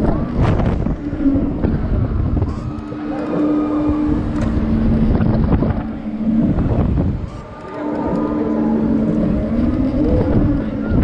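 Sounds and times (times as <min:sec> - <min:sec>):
low rumble: 0:00.0 - 0:11.0
steady low ride hum: 0:00.0 - 0:11.0
wind buffeting microphone: 0:00.0 - 0:11.0.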